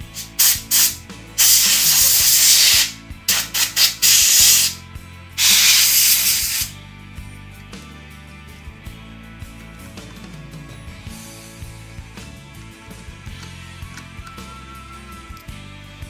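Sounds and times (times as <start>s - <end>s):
compressed air spraying: 0.0s - 4.8s, 5.4s - 6.8s
soft background music: 0.0s - 16.0s.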